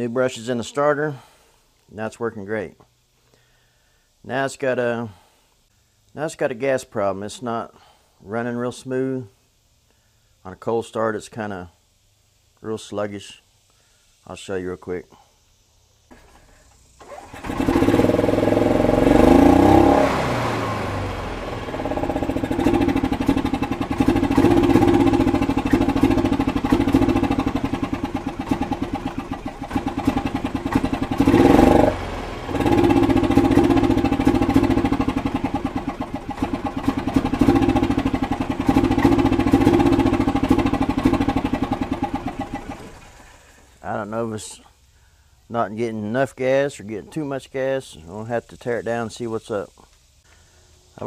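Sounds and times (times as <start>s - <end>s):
golf cart engine revving unevenly: 16.1s - 43.8s.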